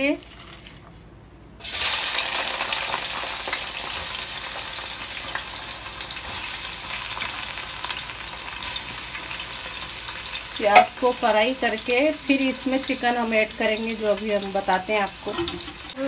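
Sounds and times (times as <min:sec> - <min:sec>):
onions sizzling in oil: 0:01.6 - 0:16.0.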